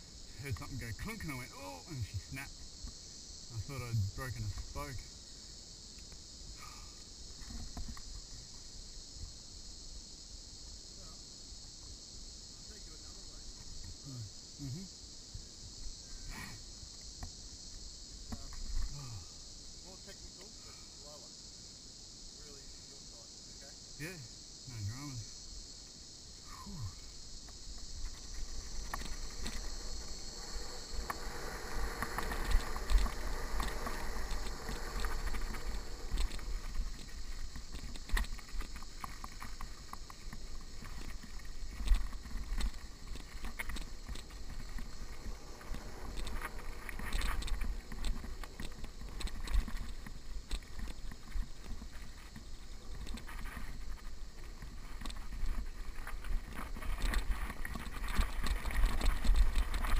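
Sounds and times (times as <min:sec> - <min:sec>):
bike tyres rolling over dirt: 0:00.0 - 0:10.9, 0:24.7 - 0:59.9
high insect buzz: 0:00.0 - 0:59.9
wind rumbling on microphone: 0:26.9 - 0:59.9
bike rattling over bumps: 0:27.2 - 0:59.9.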